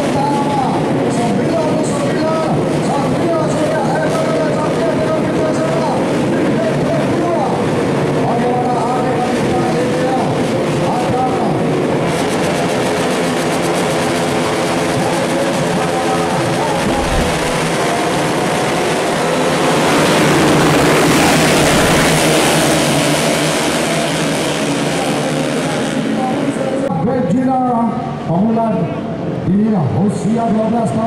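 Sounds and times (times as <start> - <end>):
motorcycles revving and accelerating: 9.1 - 26.8.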